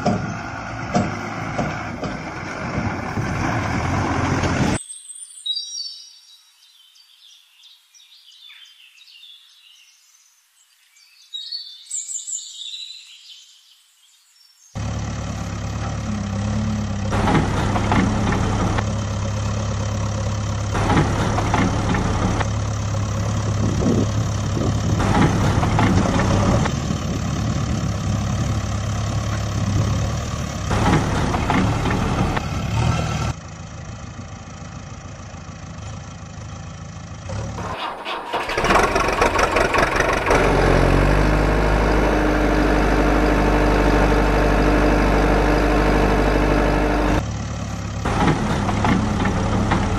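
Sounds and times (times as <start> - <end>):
different engine running: 0.0 - 4.8, 14.8 - 49.9
heavy vehicle engine running: 0.0 - 4.8, 14.8 - 49.9.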